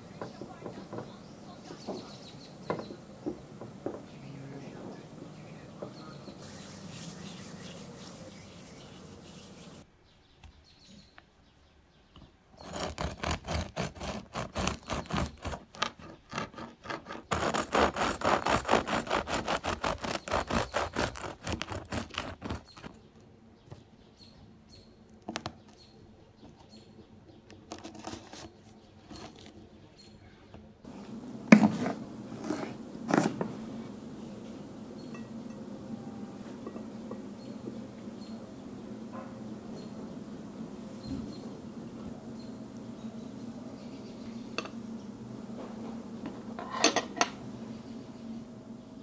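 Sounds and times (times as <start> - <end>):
bread knife sawing through bread: 12.6 - 22.9.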